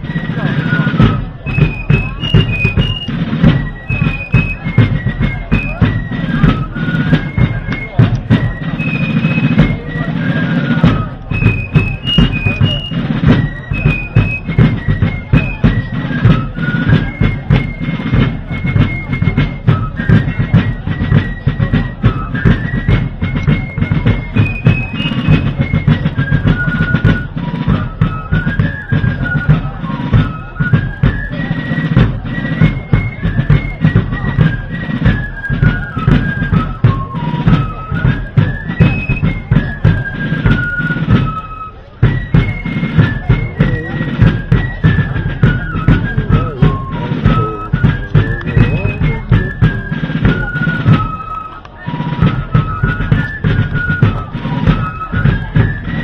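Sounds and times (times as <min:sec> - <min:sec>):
rapid drumming: 0:00.0 - 0:56.0
fifes playing melody: 0:42.6 - 0:44.3, 0:44.9 - 0:51.0.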